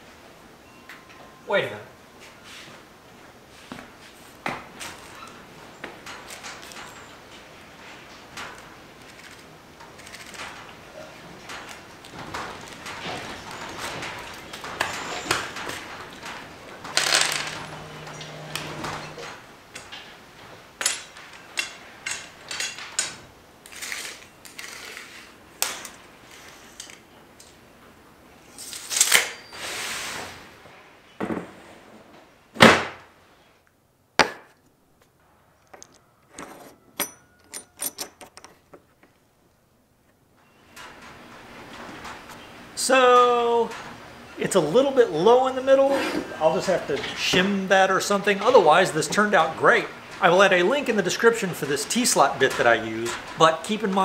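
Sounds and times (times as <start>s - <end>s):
screws and metal parts clinking: 8.4s - 10.8s, 11.4s - 19.9s, 20.8s - 27.0s, 35.6s - 38.7s
parts knocking on wooden bench: 31.2s - 31.5s.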